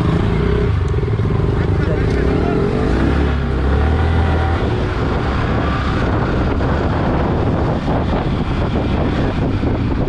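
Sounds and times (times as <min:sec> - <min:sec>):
motorcycle engine running: 0:00.0 - 0:10.0
wind buffeting microphone: 0:02.9 - 0:10.0.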